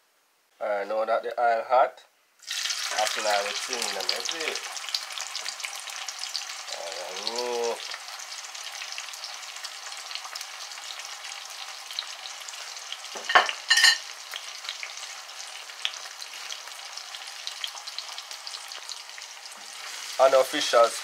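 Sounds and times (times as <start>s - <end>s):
vegetables sizzling in hot oil: 2.4s - 21.0s
ringing clink: 13.7s - 14.0s.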